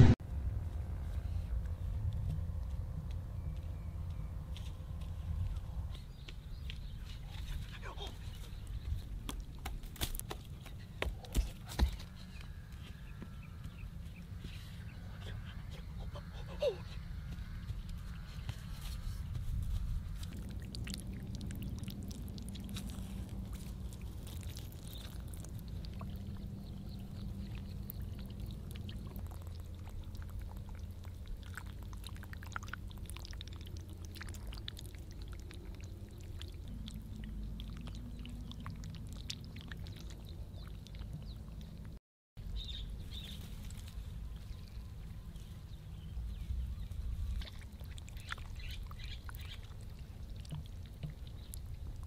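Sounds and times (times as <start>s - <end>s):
wind rumble on microphone: 0.0s - 9.9s, 12.2s - 52.0s
faint wet clicks: 20.2s - 42.0s, 47.3s - 52.0s.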